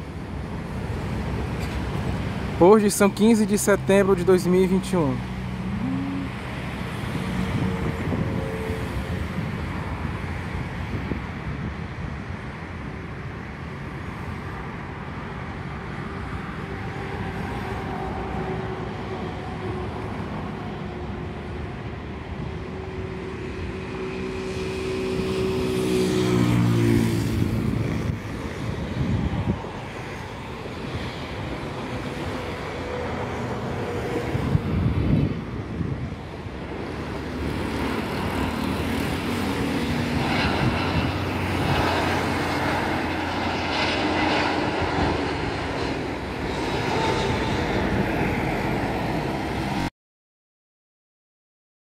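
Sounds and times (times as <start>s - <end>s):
road traffic: 0.0s - 49.9s
vehicle passing close: 36.9s - 49.9s.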